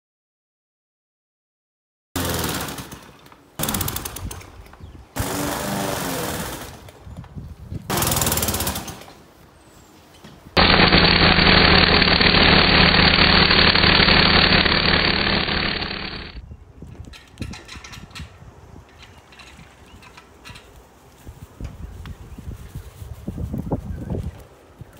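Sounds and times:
line trimmer running: 10.6 - 16.4
loud steady engine drone: 10.6 - 16.4
push mower cutting grass: 10.6 - 16.4.

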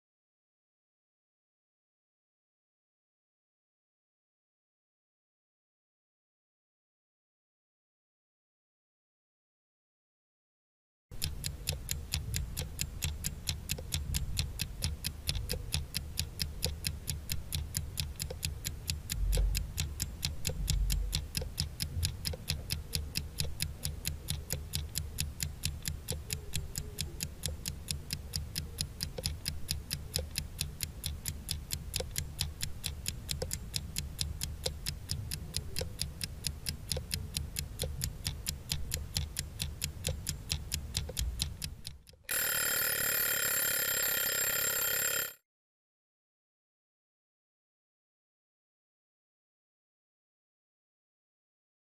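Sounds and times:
low steady hum: 11.2 - 42.0
clock ticking fast: 11.2 - 45.4.

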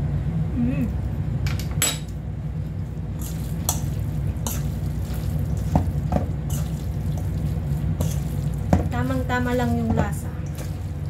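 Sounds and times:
steady low hum: 0.0 - 11.0
wet stirring of noodles: 2.5 - 11.0.

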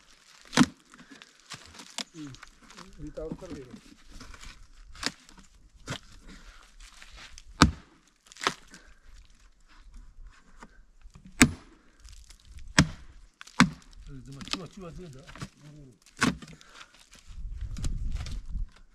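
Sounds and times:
blade chopping dry wood: 0.3 - 2.1, 3.2 - 6.1, 7.4 - 8.9, 11.2 - 16.9.

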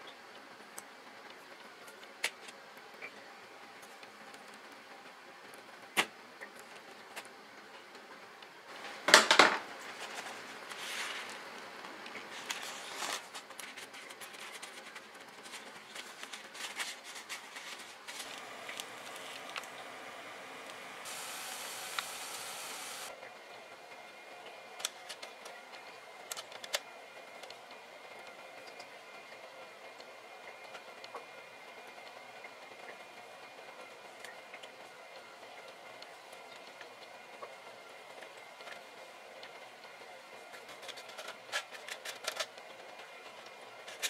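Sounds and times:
paper towel rustling: 9.8 - 11.5, 12.3 - 23.1
steady hiss: 15.5 - 23.2.

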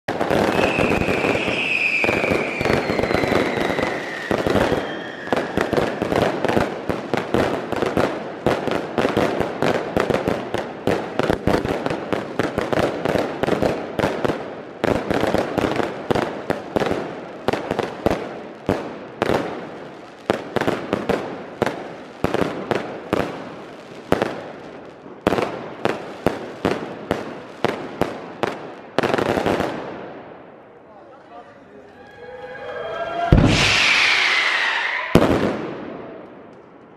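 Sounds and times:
firework bangs: 0.1 - 30.4, 31.9 - 36.8
firework whistle falling: 0.4 - 6.1, 31.8 - 35.8.

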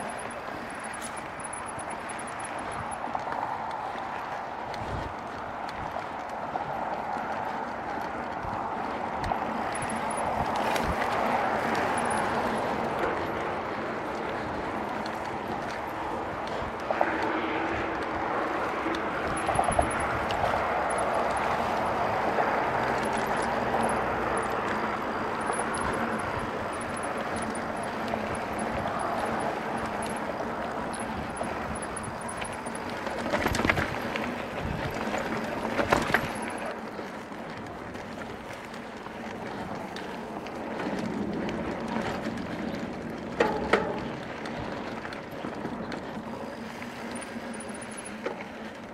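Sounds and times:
bike tyres rolling on dirt: 0.0 - 48.9
bike knocking over bumps: 40.8 - 46.1.

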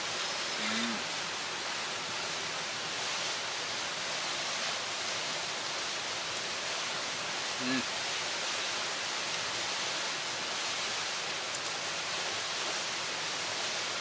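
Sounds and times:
steady rushing hiss: 0.0 - 14.0.

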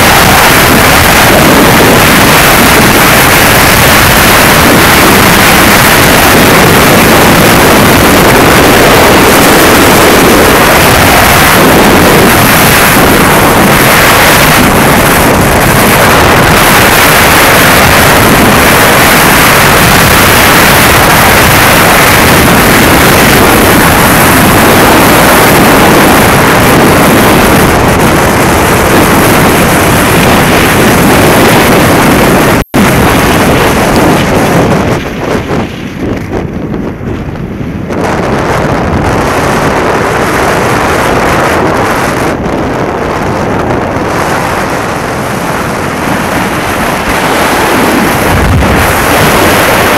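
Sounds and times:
skis on hard snow: 0.0 - 49.9
wind buffeting microphone: 0.0 - 49.9.

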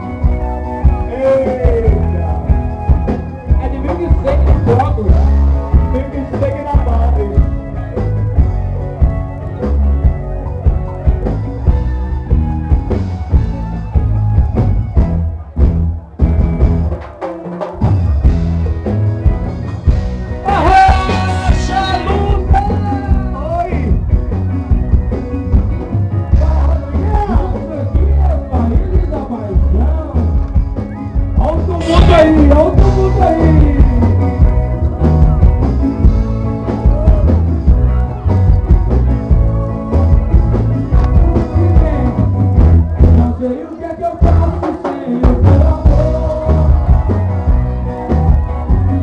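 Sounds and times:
electric bass: 0.0 - 17.0, 17.8 - 49.0
drum kit: 0.0 - 49.0
live rock band playing: 0.0 - 49.0
melodic lead line: 0.0 - 49.0
person singing: 20.4 - 23.5, 31.4 - 34.8, 41.0 - 47.8.

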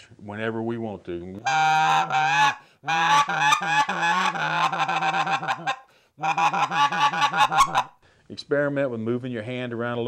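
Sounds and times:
goose call rolling notes: 1.4 - 7.9.

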